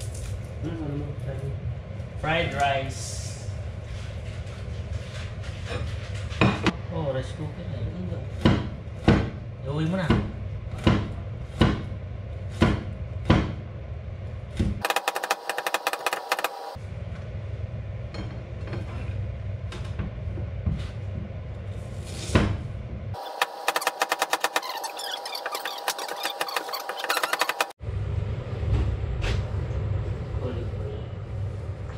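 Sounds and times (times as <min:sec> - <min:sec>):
cleaver chopping on cutting board: 0:08.4 - 0:09.4, 0:10.1 - 0:11.9, 0:12.5 - 0:13.6.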